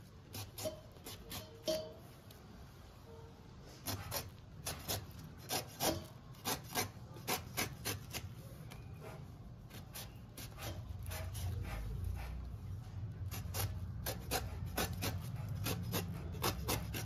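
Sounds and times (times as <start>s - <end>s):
knife scraping fruit rind: 0.0s - 2.5s, 3.6s - 17.0s.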